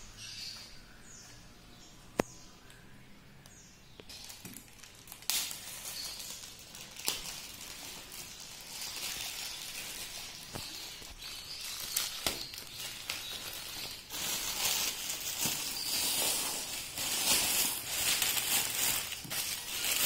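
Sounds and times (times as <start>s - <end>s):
plastic wrap crinkling: 4.1s - 20.0s.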